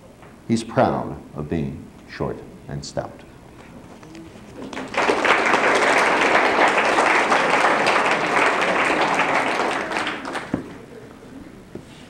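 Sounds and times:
audience applauding: 0:04.6 - 0:10.8.

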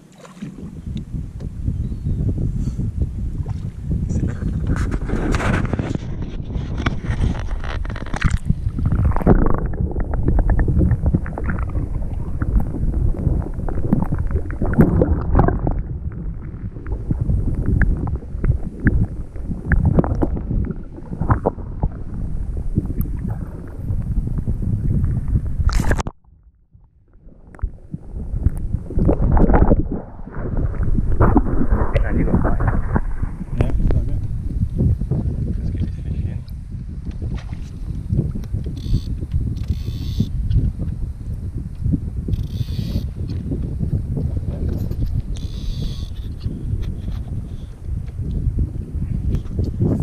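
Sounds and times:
muffled underwater rumbling: 0:00.0 - 0:50.0.

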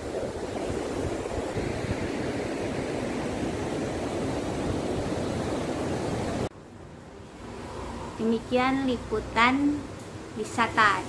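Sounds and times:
wind on microphone: 0:00.0 - 0:06.5.

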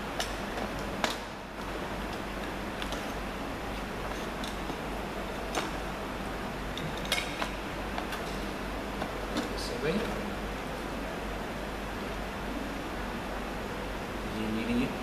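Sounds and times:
room hiss: 0:07.5 - 0:15.0.

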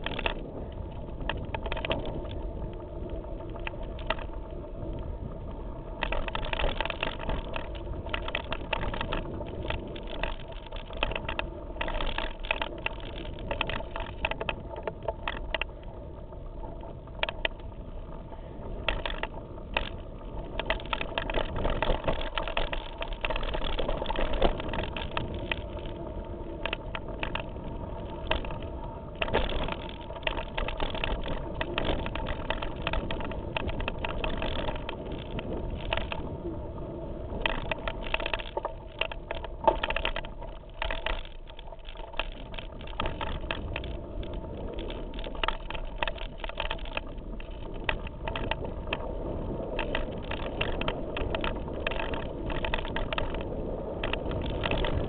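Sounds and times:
mountain bike rattling: 0:00.0 - 0:55.0
tyre and trail noise: 0:00.0 - 0:55.0
bike knocking on rocks: 0:28.2 - 0:36.2.

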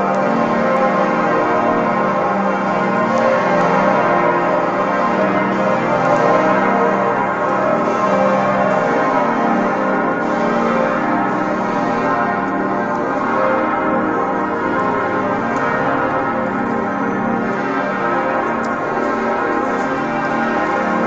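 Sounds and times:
church bells ringing: 0:00.0 - 0:21.0.

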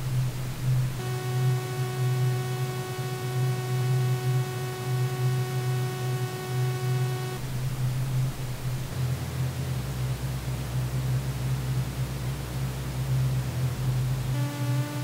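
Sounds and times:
loud low hum: 0:00.0 - 0:15.0.

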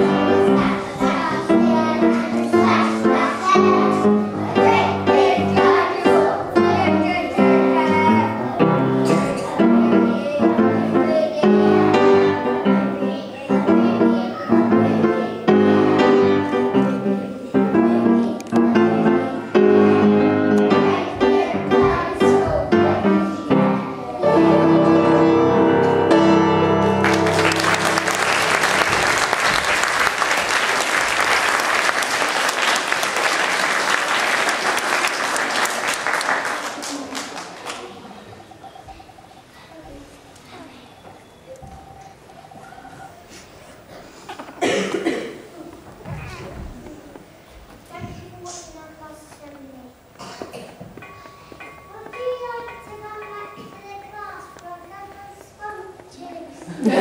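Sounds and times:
children singing: 0:00.0 - 0:31.0
piano accompaniment: 0:00.0 - 0:36.3, 0:50.0 - 0:55.3
audience applauding: 0:26.8 - 0:38.1.

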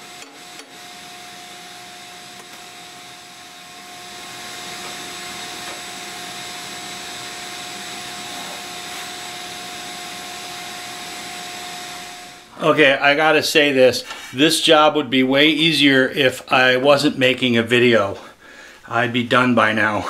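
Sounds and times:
vacuum cleaner running: 0:00.0 - 0:12.8.

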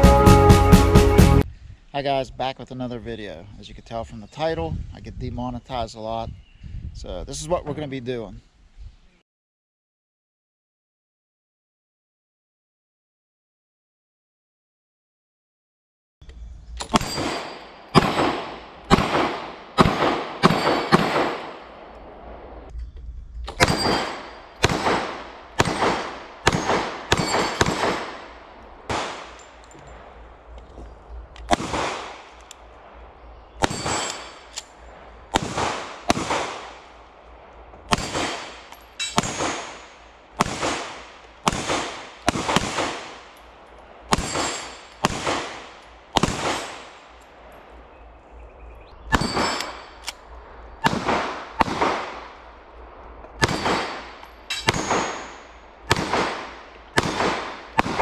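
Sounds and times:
pistol shots with echo: 0:16.8 - 0:22.6, 0:23.5 - 0:30.3, 0:31.4 - 0:47.2, 0:49.1 - 0:52.7, 0:53.4 - 0:58.0.

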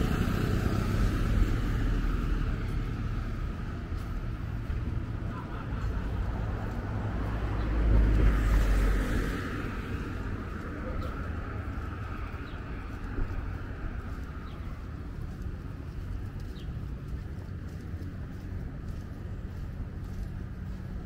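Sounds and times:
car passing: 0:00.0 - 0:17.8
low traffic rumble: 0:00.0 - 0:21.0.

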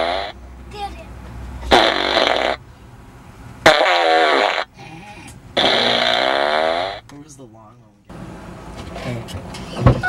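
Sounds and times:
recorded fart sounds from speaker: 0:00.0 - 0:00.3, 0:01.7 - 0:02.6, 0:03.6 - 0:04.7, 0:05.6 - 0:07.0.

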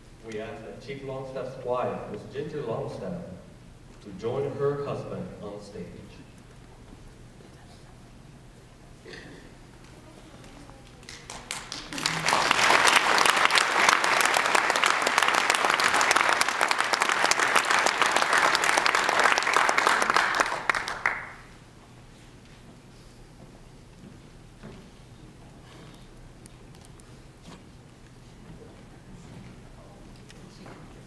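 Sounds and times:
audience applauding: 0:10.8 - 0:21.6.

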